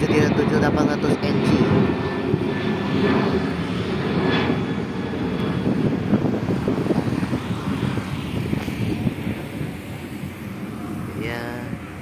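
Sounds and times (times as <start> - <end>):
jet engines rumbling: 0.0 - 12.0.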